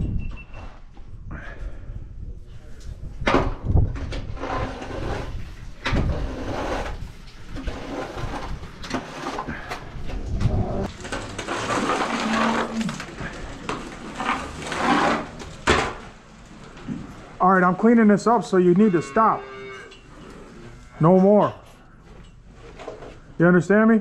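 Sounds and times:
scraper scraping wet concrete: 0:04.3 - 0:09.8, 0:10.8 - 0:15.6.

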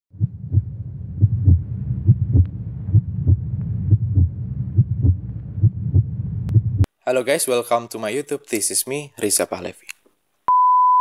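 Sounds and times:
heartbeat thumps: 0:00.1 - 0:06.9.

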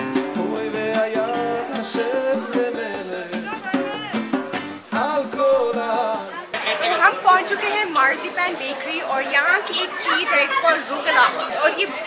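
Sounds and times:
person singing: 0:00.0 - 0:03.9, 0:04.9 - 0:06.5
plucked guitar: 0:00.0 - 0:08.2.

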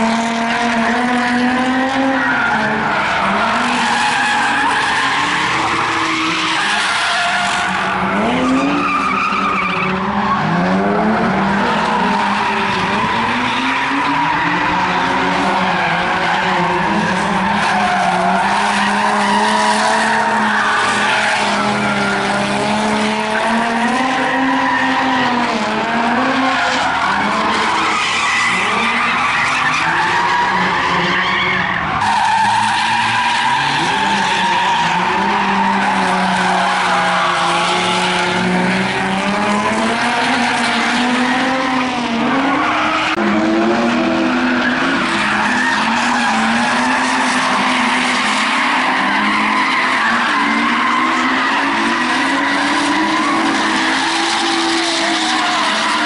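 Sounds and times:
car engines revving hard: 0:00.0 - 0:56.0
tyres squealing: 0:11.9 - 0:22.6, 0:44.3 - 0:56.0.

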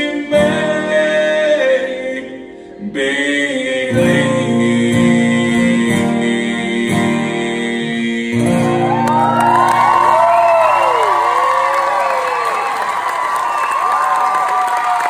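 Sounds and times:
acoustic guitar strumming: 0:03.9 - 0:10.0
crowd cheering and whistling: 0:08.6 - 0:15.0.

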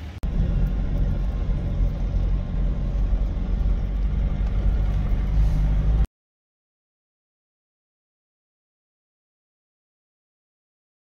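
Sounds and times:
vehicle engine and tyres rumbling: 0:00.0 - 0:06.1.

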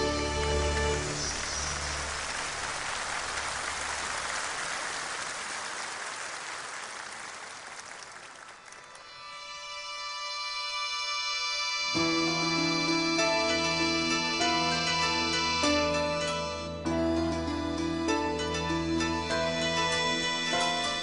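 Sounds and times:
soft music: 0:00.0 - 0:02.7, 0:08.7 - 0:21.0
audience applauding: 0:00.9 - 0:09.2.

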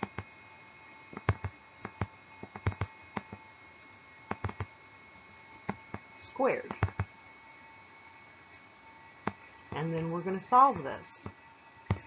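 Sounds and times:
stylus tapping on tablet: 0:00.0 - 0:00.3, 0:01.1 - 0:03.4, 0:04.3 - 0:04.7, 0:05.6 - 0:06.1, 0:06.7 - 0:07.1, 0:09.2 - 0:09.9, 0:10.7 - 0:12.0
faint steady hum: 0:00.0 - 0:12.0.

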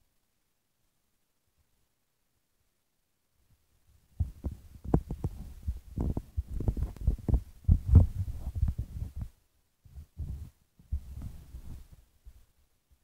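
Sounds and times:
phone microphone handling noise: 0:04.2 - 0:09.3.

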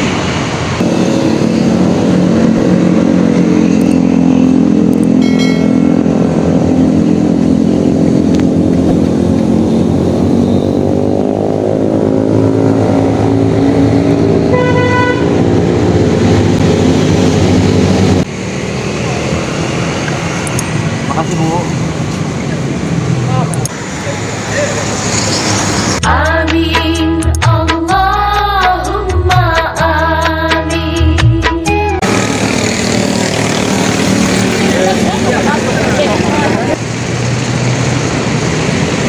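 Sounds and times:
vehicle engine running: 0:00.7 - 0:25.0, 0:32.0 - 0:39.0
horn toot: 0:14.4 - 0:15.5.

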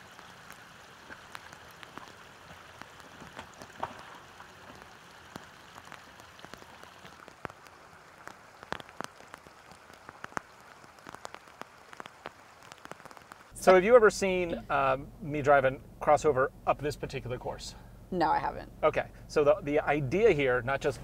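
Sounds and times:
water trickling: 0:00.0 - 0:14.5
water drips: 0:00.0 - 0:14.9
small ticks: 0:00.2 - 0:13.6.

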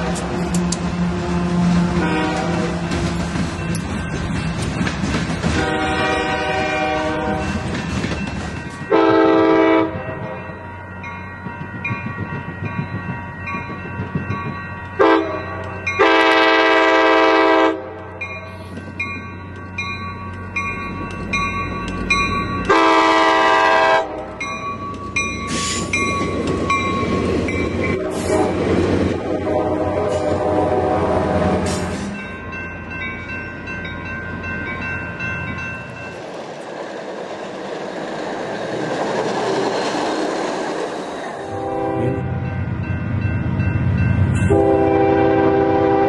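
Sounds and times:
locomotive horn blasts: 0:00.0 - 0:02.9, 0:05.5 - 0:07.6, 0:08.9 - 0:10.4, 0:15.0 - 0:18.2, 0:22.6 - 0:24.4, 0:27.8 - 0:32.2, 0:41.4 - 0:42.6, 0:44.4 - 0:46.0
rumble of passing trains: 0:00.0 - 0:46.0
train wheels on rails: 0:00.0 - 0:46.0.

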